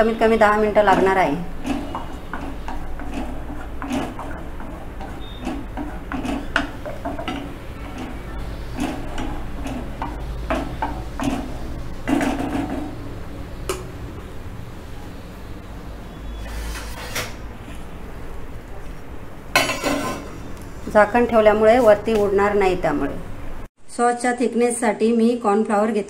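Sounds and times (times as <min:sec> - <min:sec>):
spoon stirring in metal pan: 0:00.0 - 0:13.8, 0:16.4 - 0:22.3.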